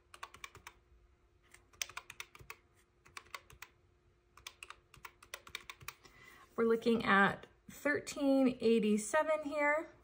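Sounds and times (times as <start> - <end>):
calculator keys clicking: 0.0 - 0.8, 1.5 - 3.8, 4.4 - 6.0.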